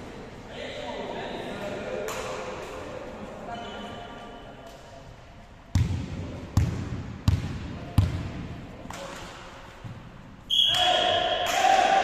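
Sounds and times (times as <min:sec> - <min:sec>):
volleyball bouncing on wooden floor: 0:05.7 - 0:09.1.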